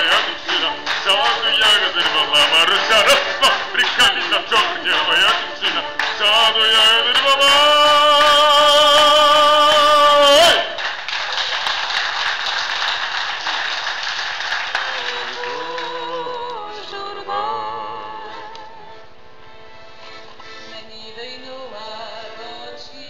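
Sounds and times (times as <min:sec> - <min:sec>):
accordion chord: 0:00.0 - 0:10.2, 0:15.0 - 0:23.0
audience applauding: 0:00.0 - 0:16.3.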